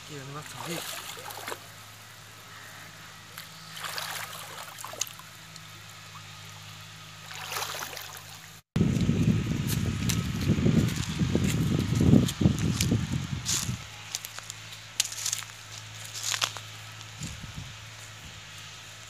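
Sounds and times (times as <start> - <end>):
water splashing and sloshing: 0.4 - 2.0, 3.3 - 8.6.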